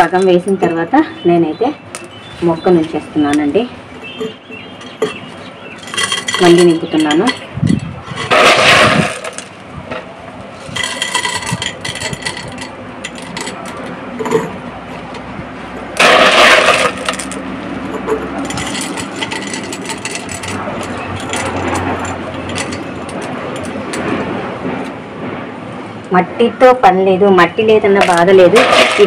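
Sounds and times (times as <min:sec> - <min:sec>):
clay pebbles rattling against glass: 0:04.2 - 0:07.5, 0:08.1 - 0:09.6, 0:10.7 - 0:14.4, 0:16.0 - 0:24.1, 0:28.0 - 0:29.0.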